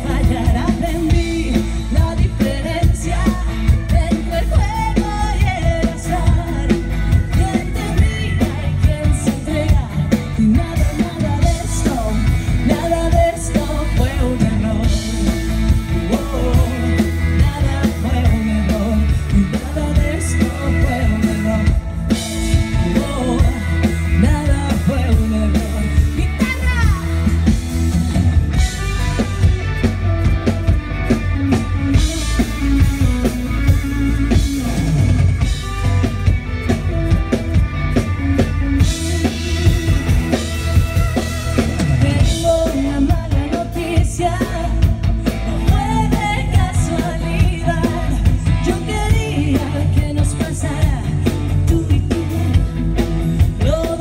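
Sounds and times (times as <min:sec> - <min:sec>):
woman singing: 0:00.0 - 0:27.3, 0:38.8 - 0:41.0, 0:41.8 - 0:52.8, 0:53.4 - 0:54.0
drum kit: 0:00.0 - 0:54.0
electric guitar: 0:00.0 - 0:54.0.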